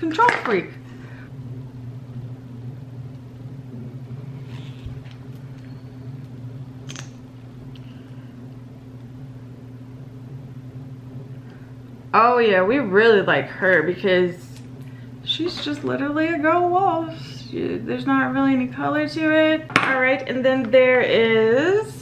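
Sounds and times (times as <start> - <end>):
low room hum: 0.0 - 22.0.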